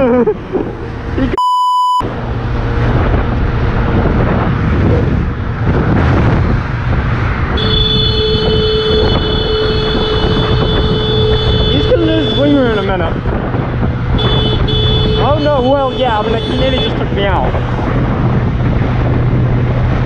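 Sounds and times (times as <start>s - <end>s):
censor bleep: 1.4s - 2.0s
motorcycle running: 2.0s - 20.0s
wind rush: 2.0s - 20.0s.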